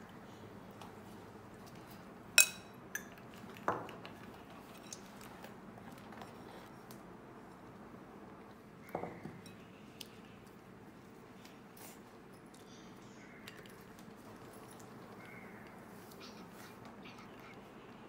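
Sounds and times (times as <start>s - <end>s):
faint steady hum: 0.0s - 18.0s
spoon clinking against bowl: 2.4s - 3.1s.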